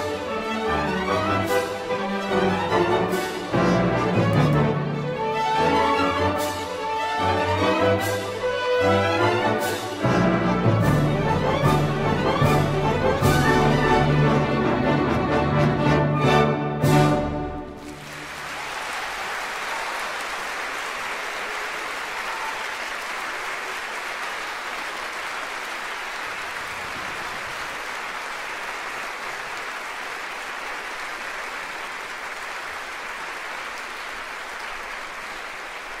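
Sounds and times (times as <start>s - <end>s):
audience applauding: 17.6s - 36.0s.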